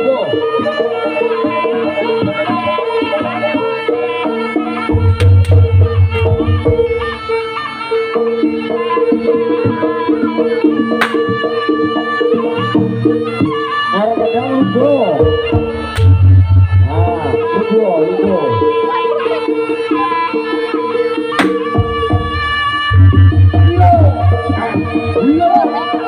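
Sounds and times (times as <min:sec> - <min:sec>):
reedy wind instrument melody: 0:00.0 - 0:26.0
drums: 0:04.7 - 0:07.5, 0:15.0 - 0:17.4, 0:21.3 - 0:25.5
deep drum beats: 0:04.9 - 0:07.3, 0:15.2 - 0:17.4, 0:21.4 - 0:25.4
sharp whip cracks: 0:11.0 - 0:11.3, 0:21.4 - 0:21.6.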